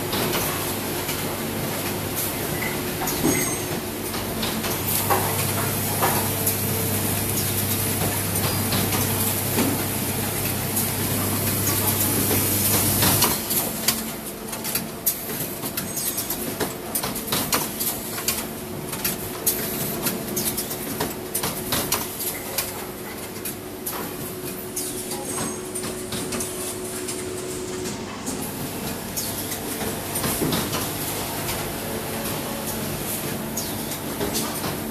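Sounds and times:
machinery humming: 0.1 - 14.6
machine clattering clicks and knocks: 2.6 - 34.9.

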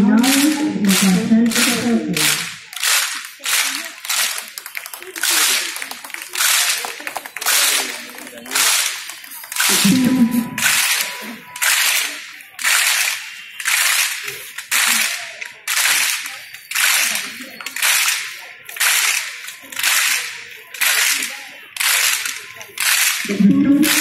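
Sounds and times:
group clapping in unison: 0.0 - 24.0.

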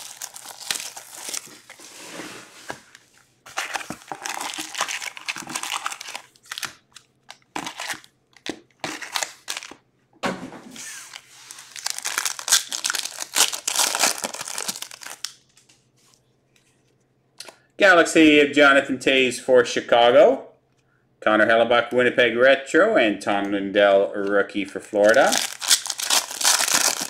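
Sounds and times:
wrappers tearing and crinkling: 0.0 - 2.0, 3.5 - 9.8, 10.9 - 15.6, 25.0 - 27.0.

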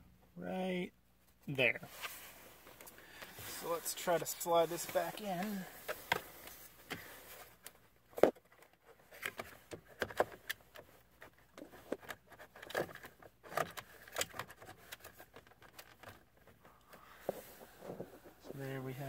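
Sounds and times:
plastic clicks and scrapes: 5.3 - 18.5.

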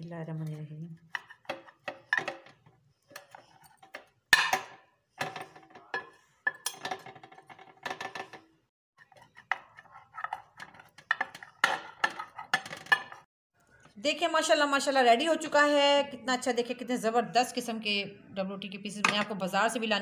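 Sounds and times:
knife scraping a plate: 9.0 - 12.7.

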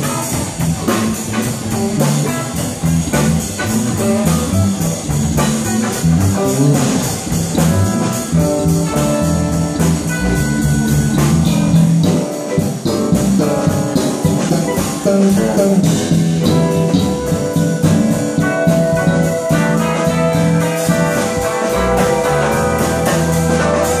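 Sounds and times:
drum kit: 0.0 - 24.0
electric bass: 0.0 - 24.0
electric guitar: 0.0 - 24.0.

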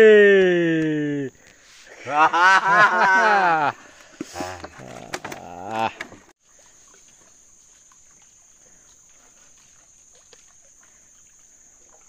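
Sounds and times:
insects droning: 0.0 - 12.0
water drips: 6.4 - 12.0.

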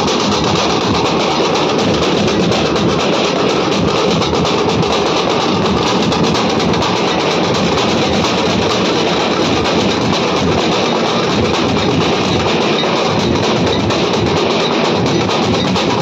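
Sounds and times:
dhol drums beaten fast: 0.0 - 16.0.

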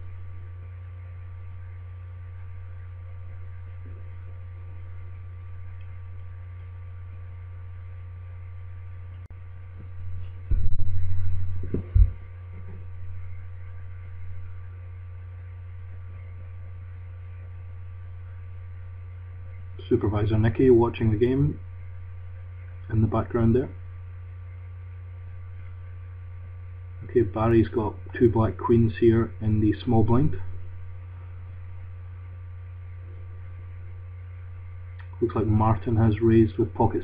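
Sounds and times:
dull low rumble: 0.0 - 27.2
electrical hum: 0.0 - 37.0.

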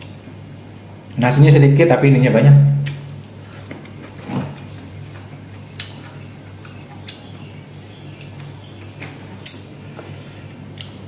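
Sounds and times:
chewing: 5.2 - 11.0.

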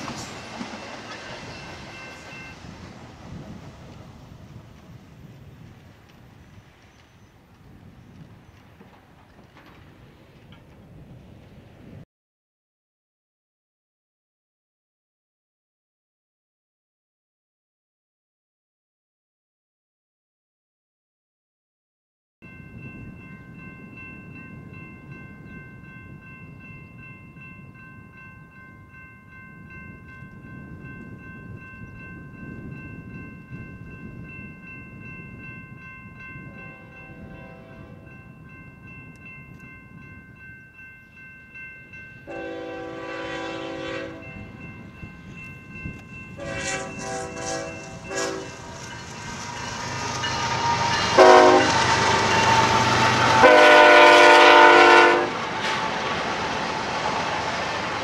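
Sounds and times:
crossing warning bell ringing: 0.0 - 2.8, 22.4 - 58.0
train rumble: 0.0 - 12.0, 22.5 - 58.0
train air horn blasts: 36.8 - 38.1, 42.3 - 44.4, 46.4 - 48.7, 50.6 - 55.9.

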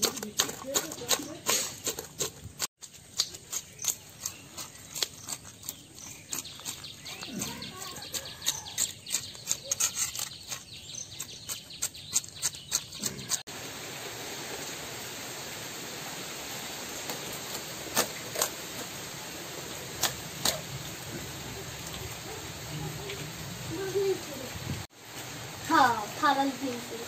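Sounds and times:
knife scraping fish scales: 0.0 - 13.5
sharp clicks of fish cutting: 3.1 - 6.8.

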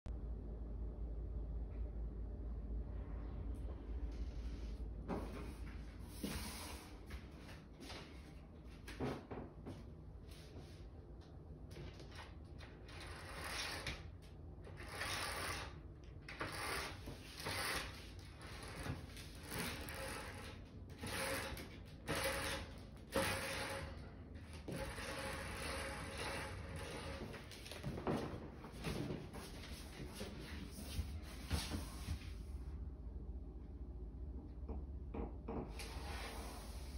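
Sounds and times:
bead chain pulled through roller: 16.4 - 24.0, 24.7 - 27.3.

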